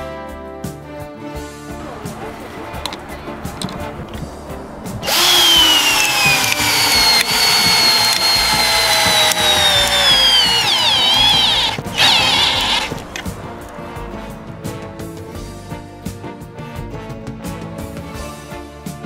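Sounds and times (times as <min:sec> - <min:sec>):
cordless drill whining: 0:05.0 - 0:13.2.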